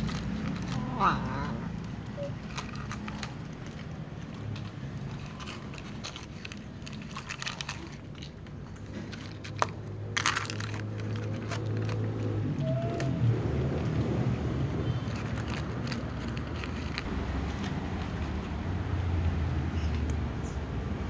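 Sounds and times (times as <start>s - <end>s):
cat crunching dry kibble: 0.0s - 12.6s, 14.8s - 18.8s.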